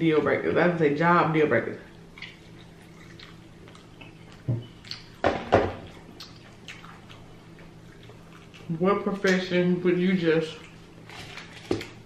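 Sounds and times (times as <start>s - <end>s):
wet chewing: 1.9s - 5.2s, 5.8s - 9.5s, 10.4s - 12.0s.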